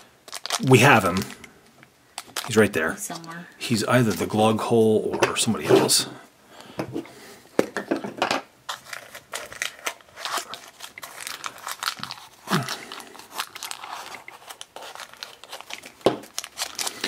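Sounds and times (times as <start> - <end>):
plastic wrapping crinkling: 0.0 - 4.4, 8.6 - 17.0.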